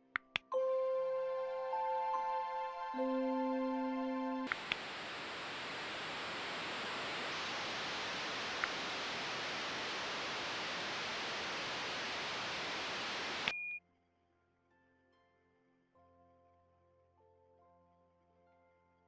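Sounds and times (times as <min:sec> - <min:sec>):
white noise hiss: 0:04.5 - 0:13.6
short high beep: 0:13.5 - 0:13.8.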